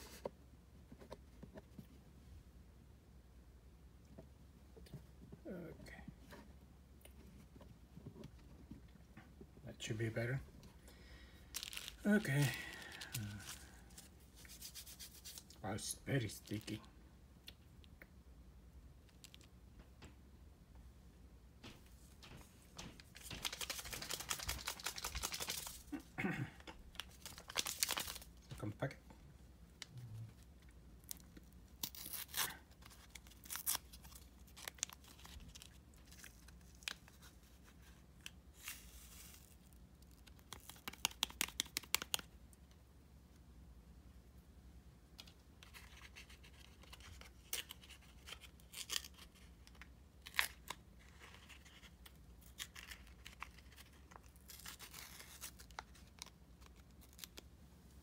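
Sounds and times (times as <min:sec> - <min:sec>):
foil sachet crinkling: 0:11.5 - 0:15.4, 0:23.0 - 0:26.0, 0:26.9 - 0:28.4, 0:50.3 - 0:57.4.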